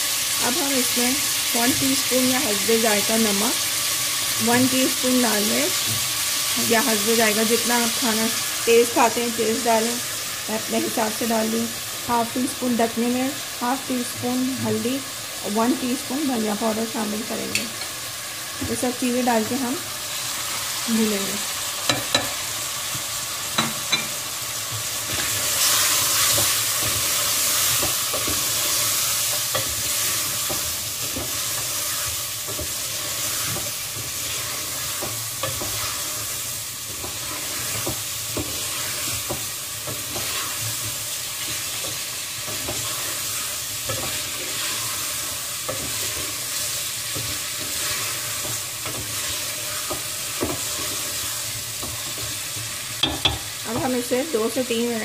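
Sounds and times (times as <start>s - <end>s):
masala sizzling in a pot: 0.0s - 55.0s
spoon scraping and knocking pot: 23.5s - 24.2s, 53.0s - 53.9s.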